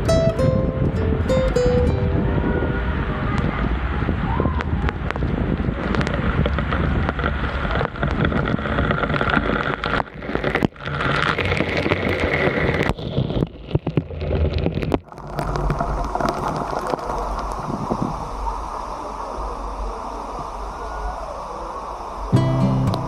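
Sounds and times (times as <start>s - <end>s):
wind buffeting microphone: 0.0s - 15.0s, 17.3s - 18.8s.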